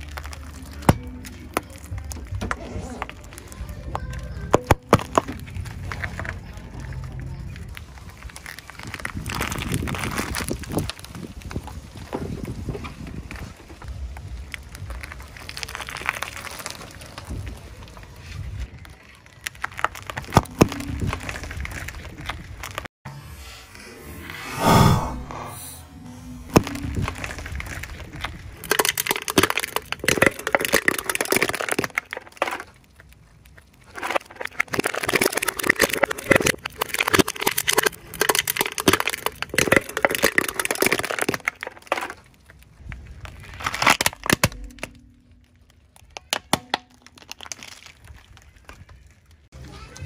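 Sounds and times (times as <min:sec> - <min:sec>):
tyre crushing aluminium cans: 0:04.3 - 0:06.7, 0:19.4 - 0:22.9, 0:26.6 - 0:49.5
plastic toy cracking: 0:07.7 - 0:11.6, 0:14.5 - 0:18.0, 0:18.7 - 0:22.9, 0:26.6 - 0:49.5.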